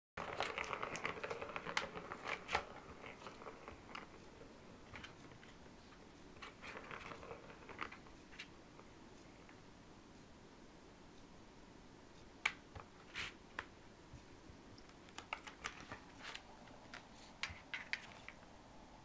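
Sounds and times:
plastic ball rolling and rattling: 0.2 - 8.5, 14.9 - 18.5.

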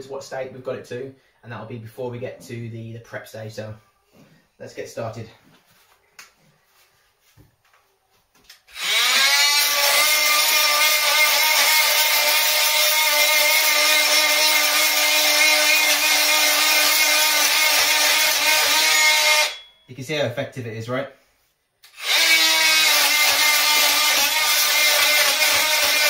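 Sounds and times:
oscillating multi-tool scraping plaster: 8.7 - 19.6, 21.9 - 26.0.

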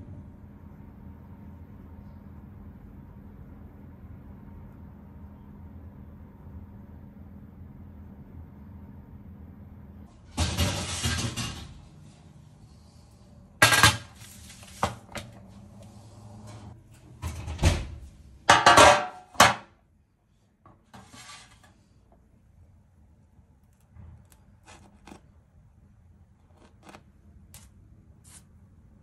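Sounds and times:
faint steady hum: 0.0 - 10.3, 11.5 - 29.0
metal tray scraping slide: 10.4 - 11.6, 20.9 - 21.8.

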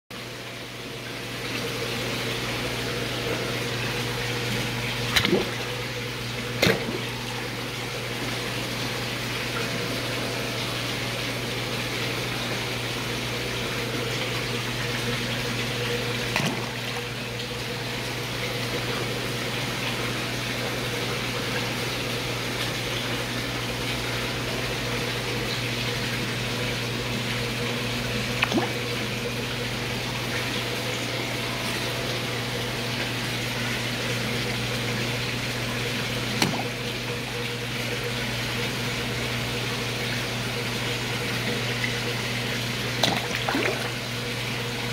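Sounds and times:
pump hum: 0.1 - 44.9
running water rushing: 1.0 - 44.9.

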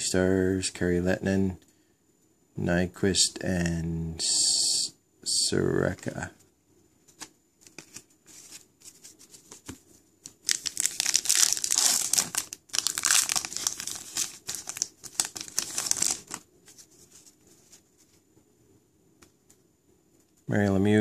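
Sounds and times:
faint handling of cards: 5.9 - 18.5
foil wrapper crackling: 10.3 - 16.4.

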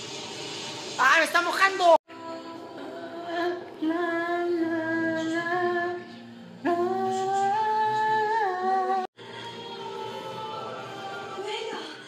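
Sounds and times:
person humming a slow melody: 2.2 - 9.1.

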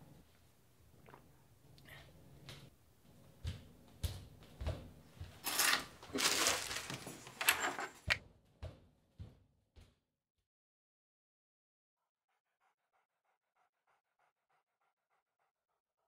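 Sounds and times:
plastic bag crinkling: 6.0 - 7.4.

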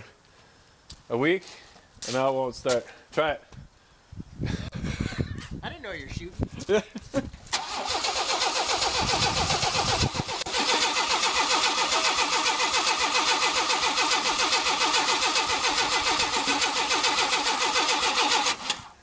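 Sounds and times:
engine cranking without starting: 7.5 - 19.0.

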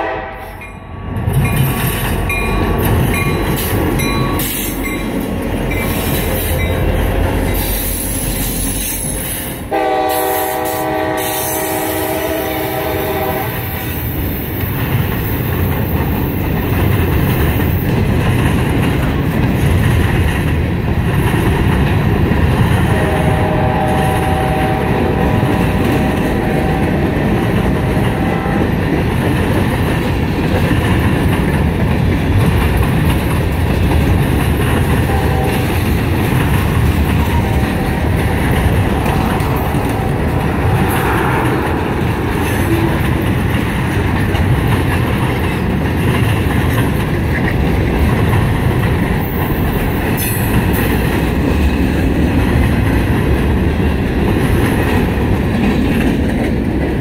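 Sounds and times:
freight train rolling past: 0.0 - 57.0.

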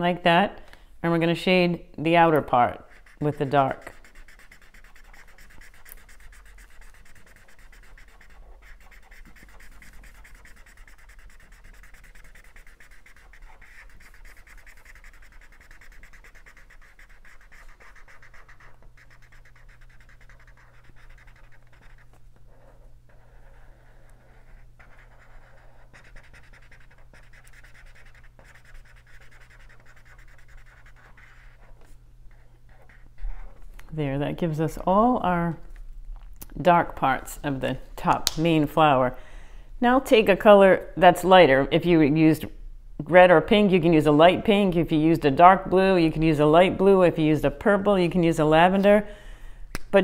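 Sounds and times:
marker scratching on paper: 2.3 - 33.7.

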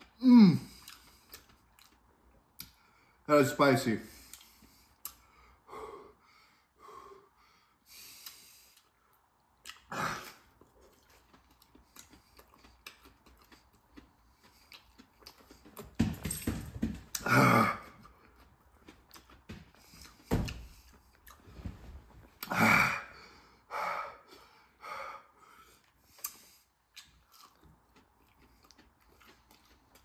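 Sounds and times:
man breathing hard: 4.0 - 8.9, 22.4 - 26.8.

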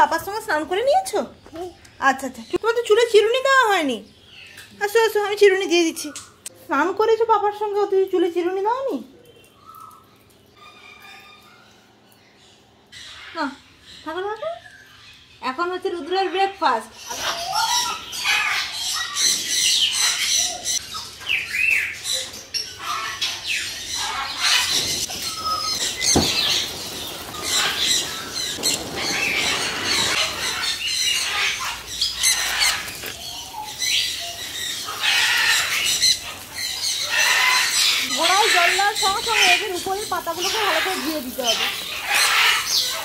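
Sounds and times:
birds squawking and chirping: 0.0 - 6.5, 8.5 - 43.0
hose water splashing on leaves: 24.6 - 43.0.

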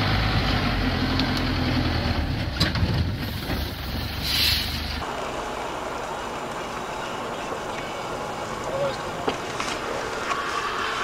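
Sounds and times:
brief hiss: 4.2 - 5.0.

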